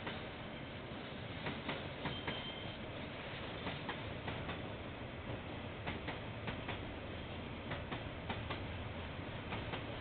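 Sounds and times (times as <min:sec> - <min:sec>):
train rumble: 0:00.0 - 0:10.0
train wheels clicking over rail joints: 0:05.3 - 0:06.9, 0:07.6 - 0:08.8, 0:09.4 - 0:10.0.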